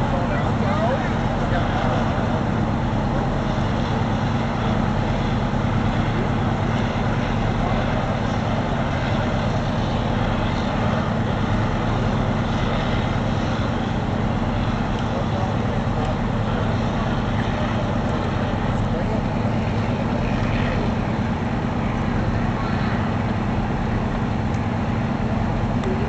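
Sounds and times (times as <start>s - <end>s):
fire truck engine droning: 0.0s - 26.0s
outdoor noise: 0.0s - 26.0s.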